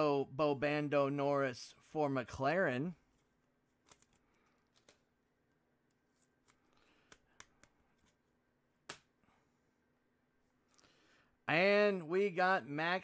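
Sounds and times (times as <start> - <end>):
trading cards clicking and rustling: 3.0 - 5.2, 5.8 - 9.1.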